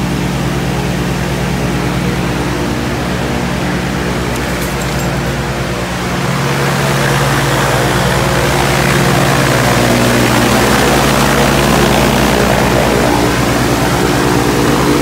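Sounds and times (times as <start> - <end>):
aircraft engine running: 0.0 - 15.0
propeller turning: 0.0 - 15.0.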